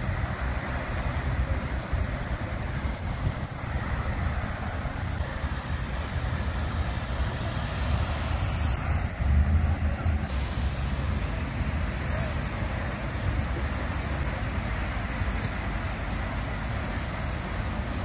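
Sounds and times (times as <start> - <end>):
water fountain splashing: 0.0 - 18.0
low rumble: 8.0 - 12.0.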